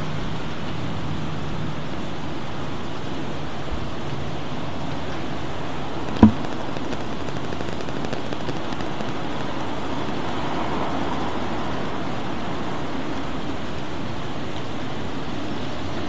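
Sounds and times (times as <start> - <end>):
heavy rain: 0.0 - 16.0
sharp knock: 6.2 - 6.5.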